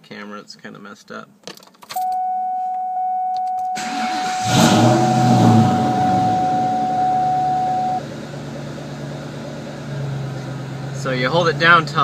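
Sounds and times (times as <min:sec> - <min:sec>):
steady high tone: 0:02.2 - 0:08.0
car engine starting and idling: 0:03.7 - 0:12.0.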